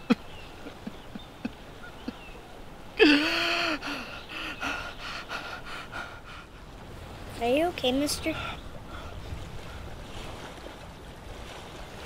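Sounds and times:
man sobbing: 3.0s - 5.0s
ragged breathing: 3.2s - 6.5s.

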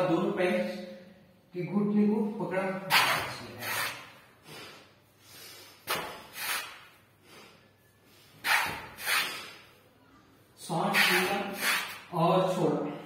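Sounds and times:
man breathing hard through nose: 4.4s - 8.4s.

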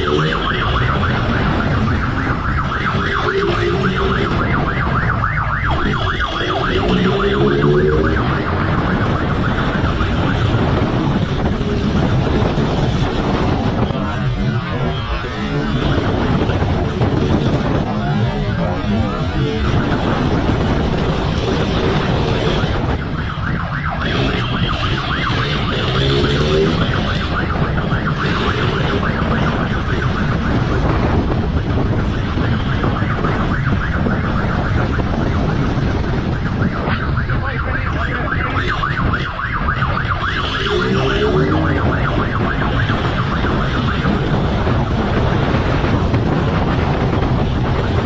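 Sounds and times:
motorcycle engine: 0.0s - 30.3s, 38.2s - 46.3s
siren yelping: 0.0s - 48.0s
wind and road noise: 0.0s - 48.0s.

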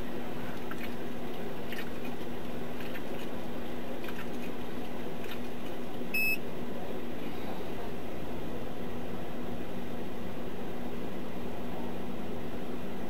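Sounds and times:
steady hiss and low hum: 0.0s - 13.0s
short high electronic beep: 6.2s - 6.4s.

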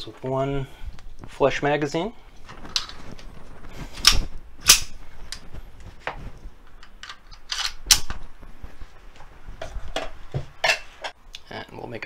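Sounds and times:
pistol metallic clicks: 4.0s - 5.0s.

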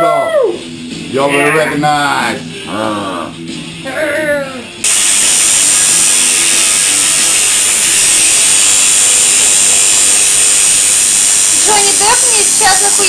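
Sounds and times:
tattoo machine buzzing: 4.8s - 13.0s.

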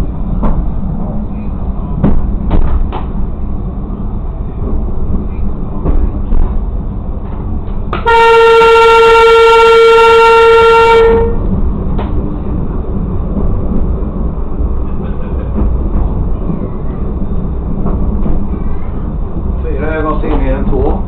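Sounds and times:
railcar rumbling on track: 0.0s - 21.0s
faint clicks from rails: 0.3s - 3.4s, 4.6s - 8.1s, 11.5s - 21.0s
railcar horn blast: 8.0s - 11.4s.

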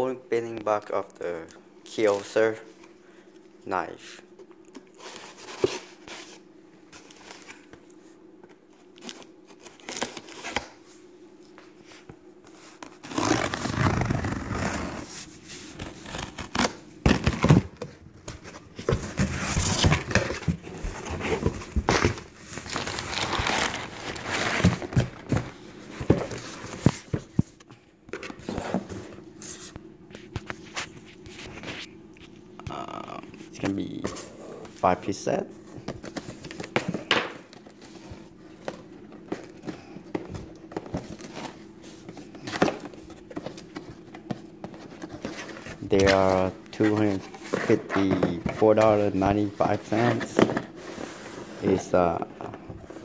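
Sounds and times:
faint steady hum: 0.0s - 53.0s
cardboard crinkling and tearing: 15.7s - 25.5s.

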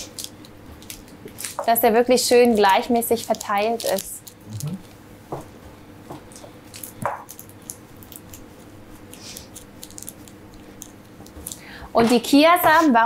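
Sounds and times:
faint steady hum: 0.0s - 13.0s
soft squishing of dough: 2.8s - 13.0s.

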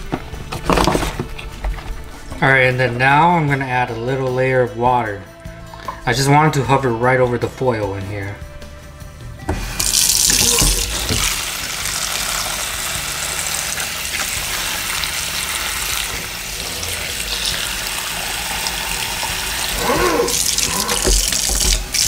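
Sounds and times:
water pouring into a foil pan: 9.8s - 22.0s.

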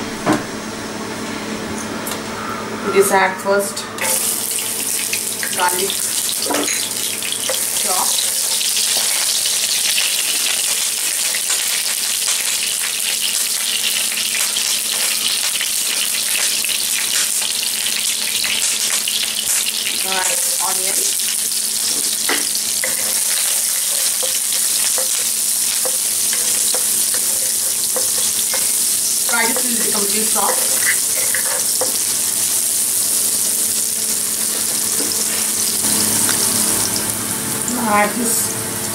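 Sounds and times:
garlic sizzling in oil: 4.0s - 38.9s
wooden spatula stirring onion: 22.0s - 32.0s.

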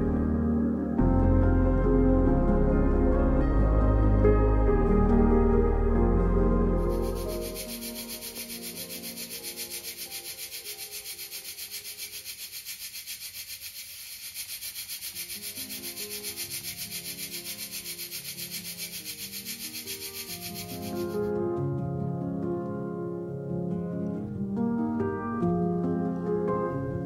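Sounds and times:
pressure cooker hissing steam: 6.9s - 21.2s.

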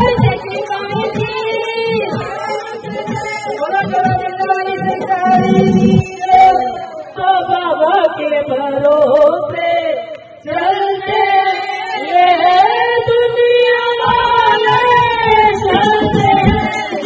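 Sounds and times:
low beat: 0.0s - 6.4s, 14.0s - 17.0s
women singing devotional song: 0.0s - 17.0s.

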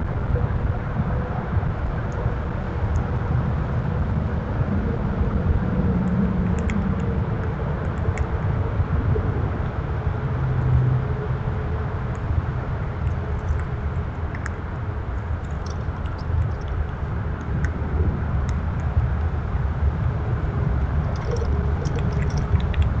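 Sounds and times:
low rumble: 0.0s - 23.0s
faint high chirps and clicks: 15.4s - 16.8s, 21.1s - 22.9s.

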